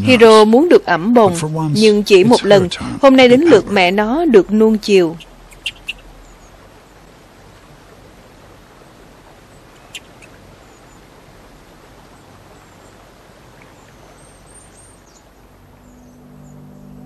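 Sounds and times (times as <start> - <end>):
soft steady hiss: 0.0 - 17.0
faint high chirps: 5.0 - 7.1, 9.5 - 11.1.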